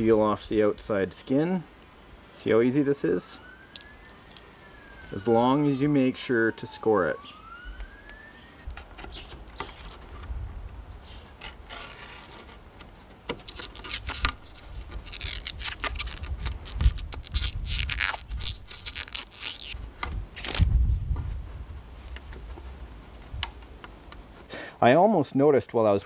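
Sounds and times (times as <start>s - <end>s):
rubbing and scraping on plastic: 8.7s - 10.4s, 11.0s - 19.8s.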